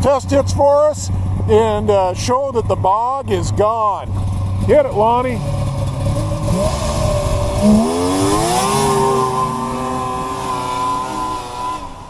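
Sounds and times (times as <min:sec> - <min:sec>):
snowmobile engine revving: 0:00.0 - 0:12.0.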